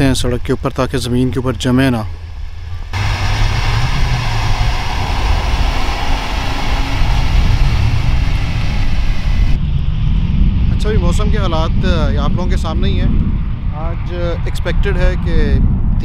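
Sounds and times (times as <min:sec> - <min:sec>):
truck engine rumble: 0:00.0 - 0:09.6
rushing road noise: 0:02.0 - 0:10.0.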